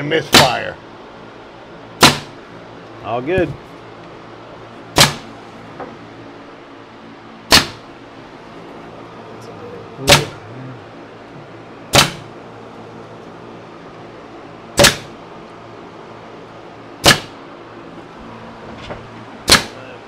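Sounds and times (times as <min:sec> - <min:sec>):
steady low hum: 0:00.0 - 0:20.0
nail gun shots: 0:00.3 - 0:00.6, 0:02.0 - 0:02.4, 0:05.0 - 0:05.3, 0:07.5 - 0:07.9, 0:10.1 - 0:10.4, 0:11.9 - 0:12.3, 0:14.8 - 0:15.2, 0:17.0 - 0:17.4, 0:19.4 - 0:19.8.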